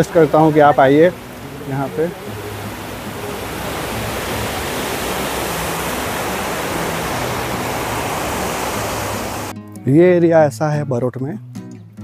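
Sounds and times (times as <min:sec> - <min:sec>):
waterfall rushing: 0:00.0 - 0:09.5.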